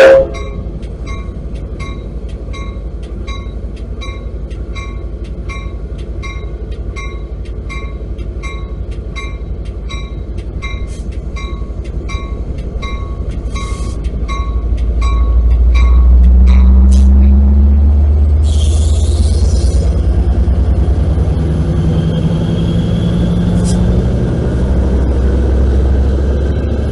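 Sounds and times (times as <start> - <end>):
locomotive bell ringing: 0.0 - 16.9
diesel engine running: 0.6 - 26.9.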